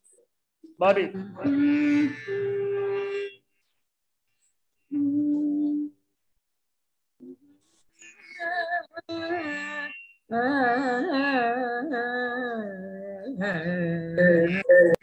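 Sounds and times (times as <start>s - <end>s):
woman singing devotional chant: 10.3s - 15.0s.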